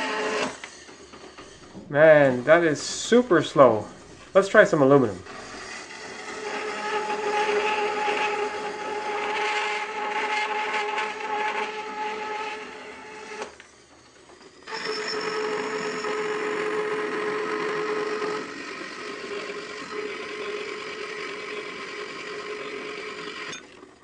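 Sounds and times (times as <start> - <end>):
bandsaw cutting metal: 0.0 - 13.7, 14.4 - 23.9.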